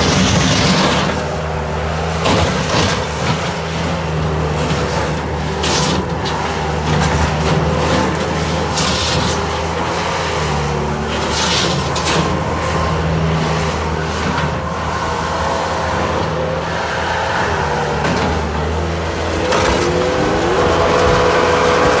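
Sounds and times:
diesel engine running: 0.0 - 22.0
drive whine: 3.8 - 22.0
short scraping noises: 4.6 - 9.7, 11.1 - 12.4.

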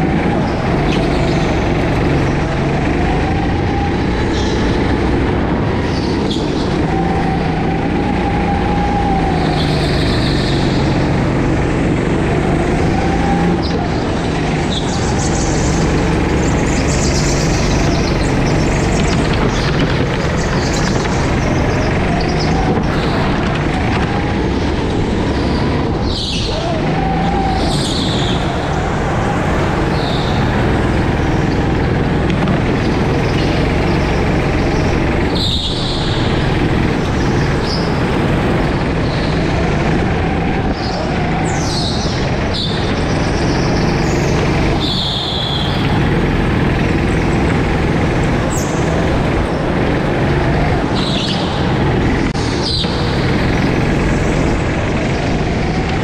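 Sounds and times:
go-kart engine running: 0.0 - 56.0
tyre squeals: 12.1 - 51.8.

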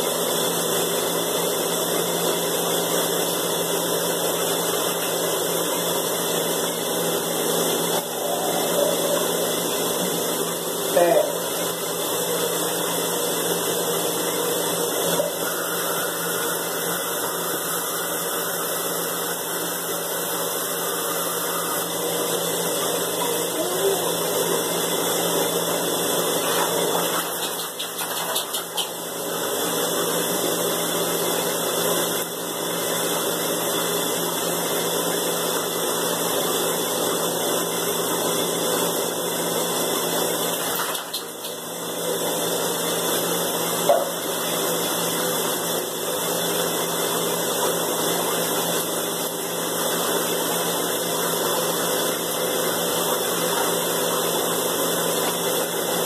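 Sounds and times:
water running from bathtub tap: 2.6 - 30.4, 39.7 - 56.0.

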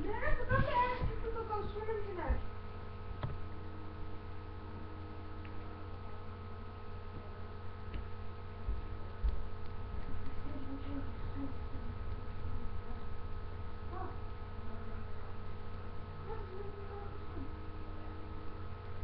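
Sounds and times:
faint low thumps: 0.0 - 3.6
electrical mains hum: 0.0 - 19.0.

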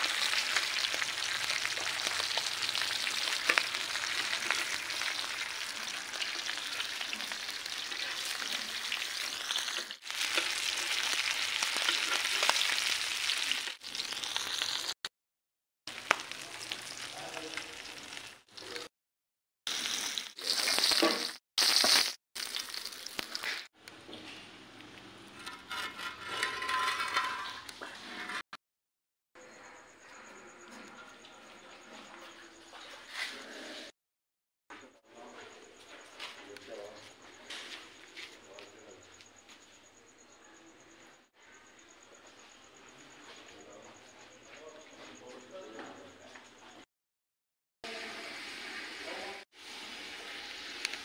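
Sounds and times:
fish sizzling in oil: 0.0 - 15.0, 15.9 - 18.9, 19.7 - 23.7, 47.9 - 51.0.

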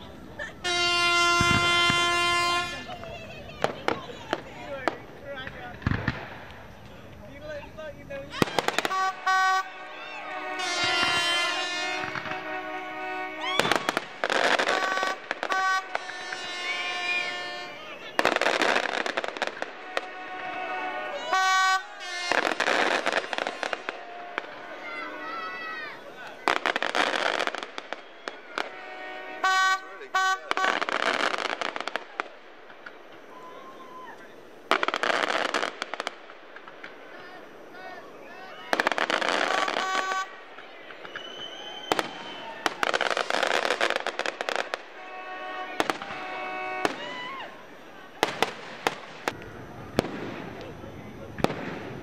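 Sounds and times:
fireworks cracking: 0.0 - 52.0
fireworks crackling burst: 0.0 - 52.0
horn-like tone: 0.6 - 3.0, 8.8 - 18.0, 19.8 - 25.4, 28.2 - 30.8, 44.9 - 47.0.

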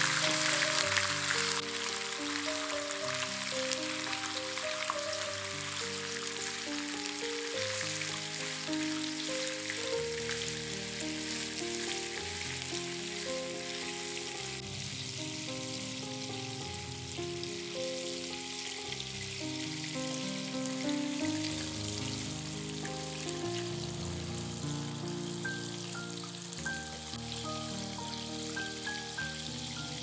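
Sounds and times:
shrimp sizzling in oil: 0.0 - 30.0
soft background music: 0.0 - 30.0.

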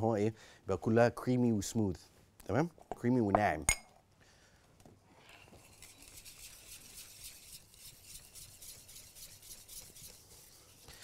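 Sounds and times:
whisk scraping a saucepan: 5.3 - 11.0.

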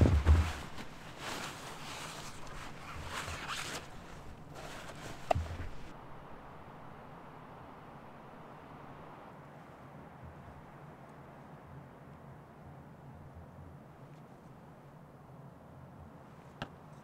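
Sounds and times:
knock: 0.0 - 0.8
boots shifting in snow: 0.0 - 5.9
foam pad rasping and rustling: 0.0 - 6.0.

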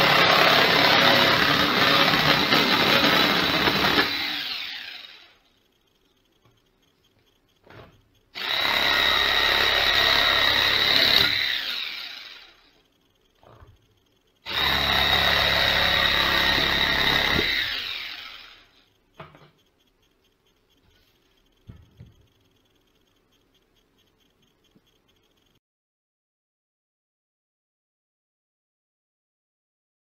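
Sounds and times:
jigsaw motor whining: 0.0 - 5.5, 8.4 - 12.8, 14.4 - 18.9.

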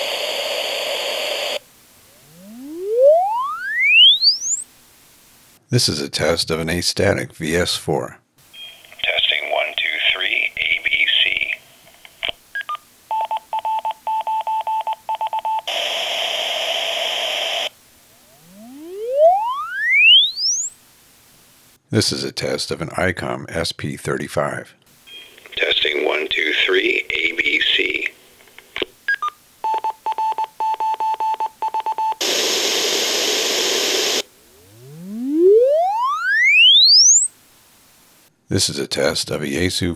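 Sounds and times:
pink noise hiss: 0.0 - 3.5, 4.1 - 5.9, 8.4 - 13.1, 15.7 - 19.5, 20.7 - 21.9, 24.9 - 29.6, 32.2 - 36.1, 37.2 - 38.4
pink noise: 0.0 - 5.6, 32.2 - 36.7
short falling beeps: 2.2 - 4.6, 18.3 - 20.7, 34.6 - 37.3.

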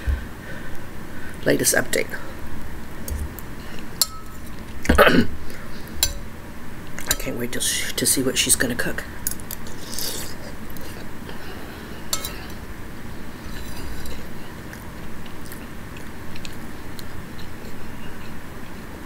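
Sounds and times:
spoon clinking against bowl: 4.0 - 4.5, 6.0 - 6.2, 12.1 - 12.6
chewing food: 13.4 - 18.9.

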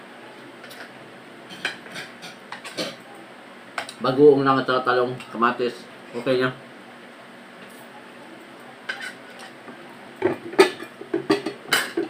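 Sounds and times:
tableware clicking and knocking: 1.5 - 3.0, 8.9 - 9.5, 10.2 - 12.0.

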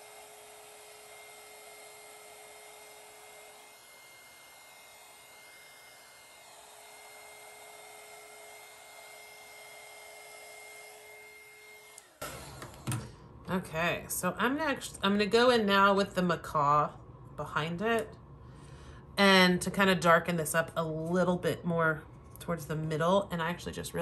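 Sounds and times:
heat gun blowing: 0.0 - 13.3.

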